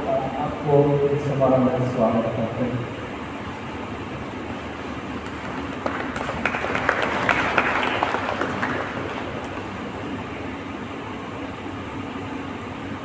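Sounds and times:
audience applause: 0:05.2 - 0:09.9.

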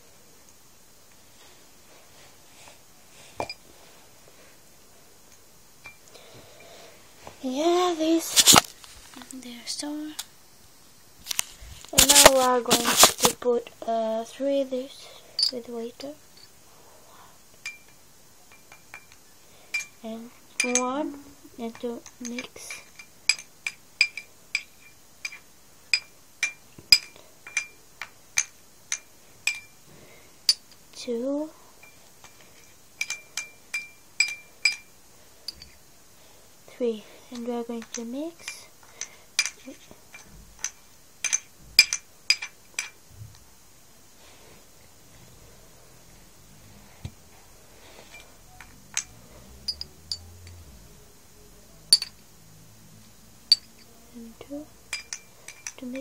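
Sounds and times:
metal fork clinking against cup: 0:54.9 - 0:56.0.

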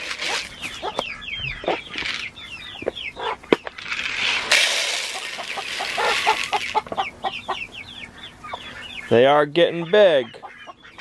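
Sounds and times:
grain poured into plastic pan: 0:00.0 - 0:00.5, 0:03.8 - 0:06.8
chickens clucking and chirping: 0:00.0 - 0:11.0.

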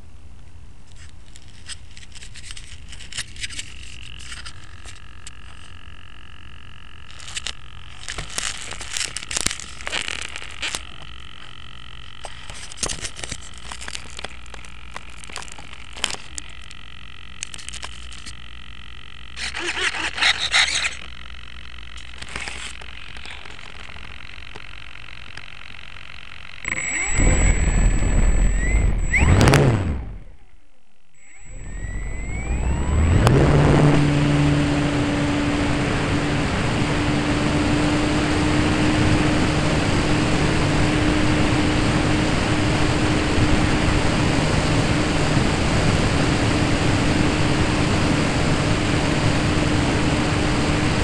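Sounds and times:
faint high whine: 0:00.0 - 0:51.0
steady low hum: 0:00.0 - 0:51.0
microphone handling scratching: 0:01.0 - 0:06.1, 0:07.0 - 0:25.6, 0:26.6 - 0:30.5, 0:31.2 - 0:35.0.

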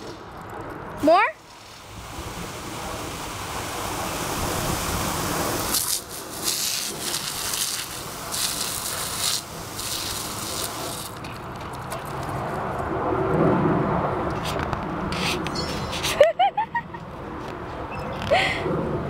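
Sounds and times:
hose water spray hissing: 0:01.0 - 0:12.3.

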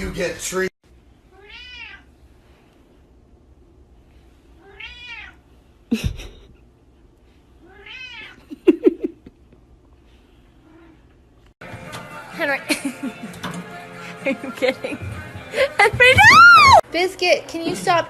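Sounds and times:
cat meowing: 0:01.3 - 0:02.1, 0:04.6 - 0:05.4, 0:07.6 - 0:08.4.

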